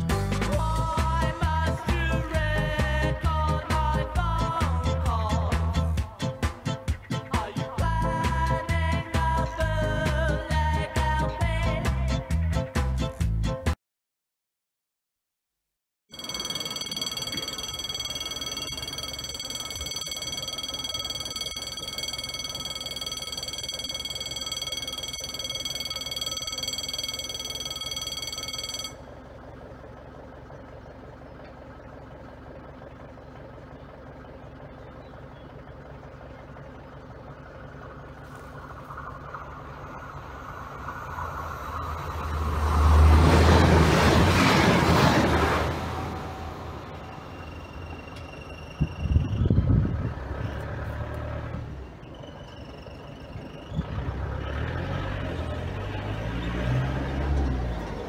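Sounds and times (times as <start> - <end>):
level crossing warning bell: 16.1 - 29.2, 44.9 - 49.6
train passing: 38.3 - 48.8.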